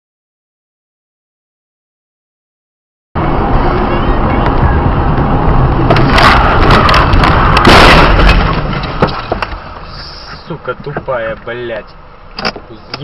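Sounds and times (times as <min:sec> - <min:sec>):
road and engine rumble: 0:03.2 - 0:13.0
car crash bangs and crunching: 0:05.8 - 0:09.8.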